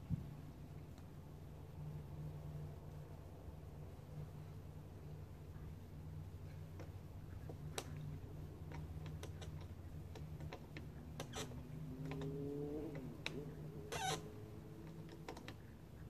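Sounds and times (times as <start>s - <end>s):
low hum: 0.0s - 16.0s
light clicks and ticks: 5.0s - 16.0s.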